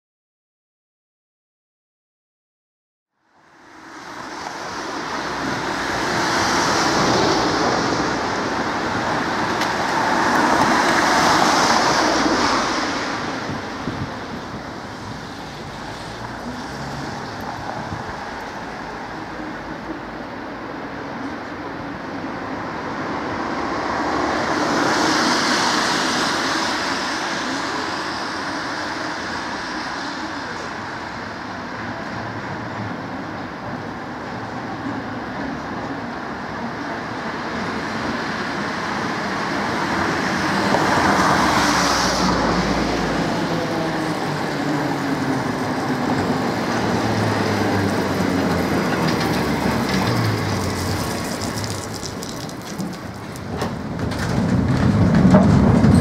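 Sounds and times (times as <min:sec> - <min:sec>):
tram running: 0:03.4 - 0:56.0
car tyres hissing on wet road: 0:24.0 - 0:31.0, 0:49.6 - 0:53.4.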